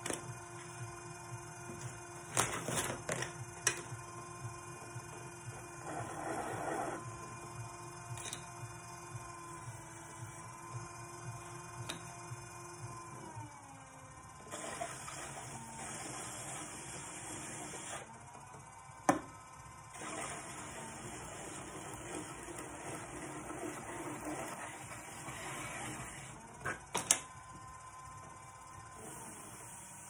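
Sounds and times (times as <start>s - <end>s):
pottery wheel whining: 0.0s - 30.0s
tool rubbing wet clay: 5.8s - 7.0s.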